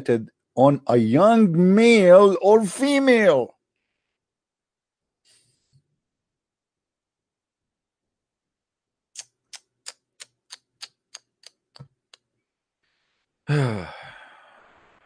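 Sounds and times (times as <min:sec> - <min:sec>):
man sighing: 0:13.4 - 0:14.8.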